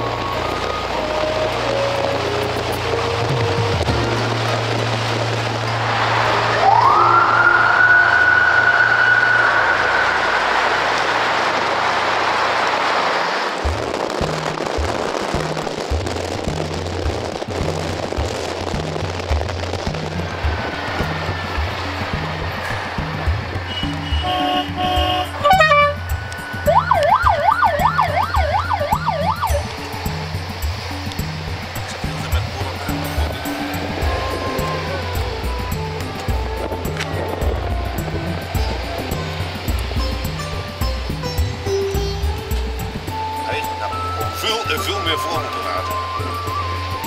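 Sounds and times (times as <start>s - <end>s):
low sustained note: 0.0s - 11.9s
high sliding tone: 5.6s - 12.1s
electronic siren wailing: 5.8s - 11.6s, 23.8s - 30.2s
falling chirp: 6.2s - 10.9s
music with bass beat: 13.6s - 47.0s.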